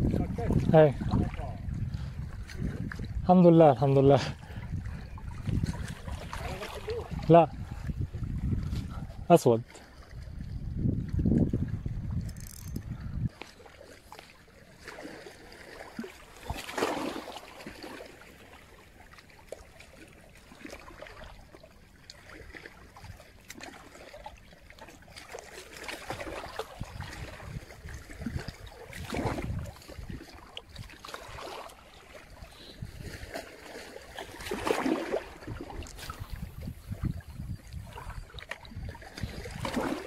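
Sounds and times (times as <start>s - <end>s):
waves lapping on stony shore: 0.0s - 10.6s, 13.3s - 40.0s
wind rumbling on microphone: 0.0s - 13.5s, 26.0s - 31.5s, 32.2s - 33.3s, 34.2s - 40.0s.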